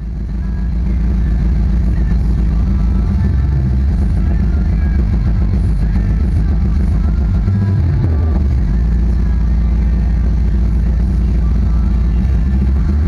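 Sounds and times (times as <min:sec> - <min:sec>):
bass-heavy music from subwoofers: 0:00.0 - 0:13.0
bass note sliding down: 0:02.8 - 0:09.1.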